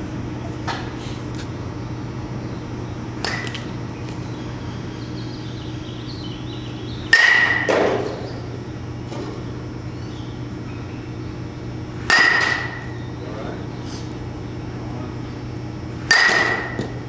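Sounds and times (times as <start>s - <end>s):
metal bat hitting ball: 3.2s - 3.6s, 7.1s - 8.2s, 12.1s - 12.9s, 16.1s - 17.0s.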